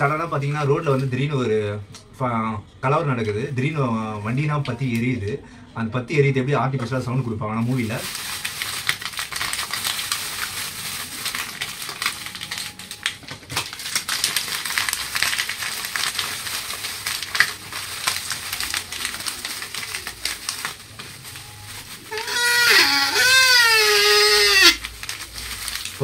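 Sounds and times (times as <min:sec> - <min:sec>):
plastic wrap crumpling and crackling: 0:00.0 - 0:01.4, 0:06.8 - 0:26.0.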